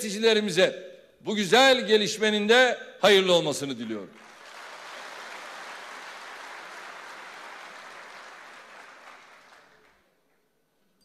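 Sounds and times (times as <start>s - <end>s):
audience applauding: 4.2s - 10.4s.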